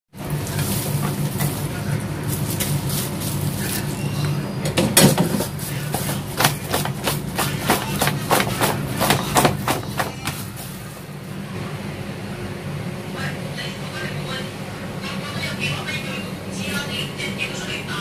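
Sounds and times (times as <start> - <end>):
steady low hum: 0.2 - 18.0.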